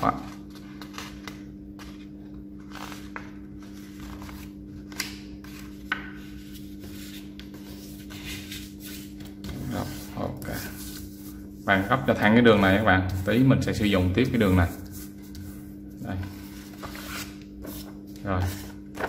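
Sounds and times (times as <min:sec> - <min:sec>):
steady low hum: 0:00.0 - 0:19.0
paper rustling and sliding: 0:14.3 - 0:19.0.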